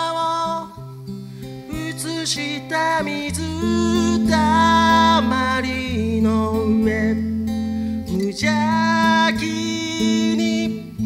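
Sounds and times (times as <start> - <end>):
lead vocal singing: 0.0 - 0.9, 1.7 - 7.4, 8.1 - 11.0
acoustic guitars strumming: 0.0 - 11.0
electric bass: 3.2 - 11.0.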